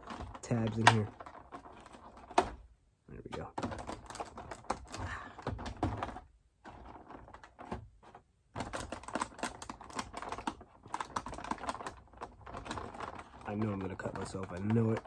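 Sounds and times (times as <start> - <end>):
plastic packaging crackling: 0.0 - 2.6, 8.6 - 15.0.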